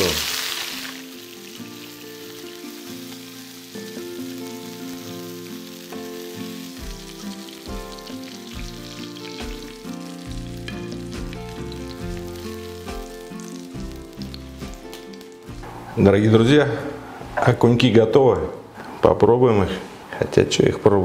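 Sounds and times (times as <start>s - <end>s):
oil sizzling in frying pan: 0.0s - 16.0s
background music: 0.0s - 19.4s.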